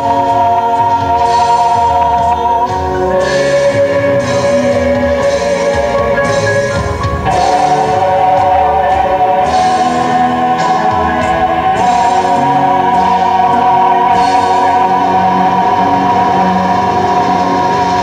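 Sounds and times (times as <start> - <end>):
band accompaniment: 0.0 - 18.0
group singing: 0.0 - 18.0.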